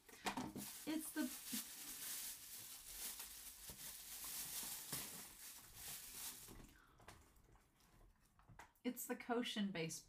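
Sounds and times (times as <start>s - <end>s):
plastic bag crinkling: 0.5s - 8.0s.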